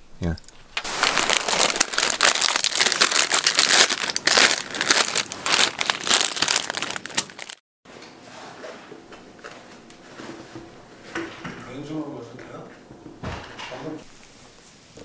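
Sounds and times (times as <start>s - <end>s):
plastic packet crinkling: 0.8s - 7.6s.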